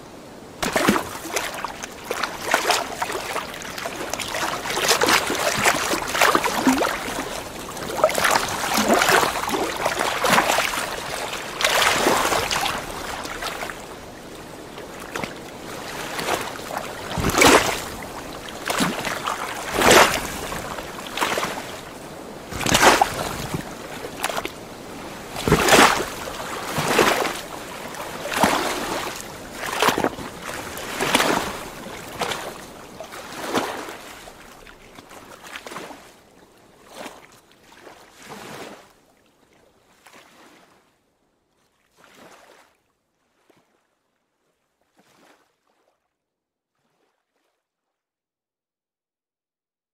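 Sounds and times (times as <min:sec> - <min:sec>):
steady wash of water: 0:00.0 - 0:36.3
water splashing: 0:00.6 - 0:36.0.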